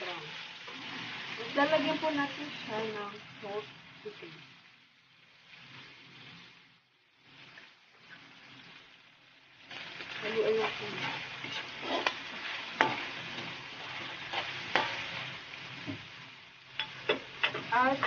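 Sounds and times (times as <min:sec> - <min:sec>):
meat sizzling in a wok: 0:00.0 - 0:18.0
spatula scraping a pan: 0:10.0 - 0:16.0
spatula clacking on metal: 0:16.8 - 0:18.0.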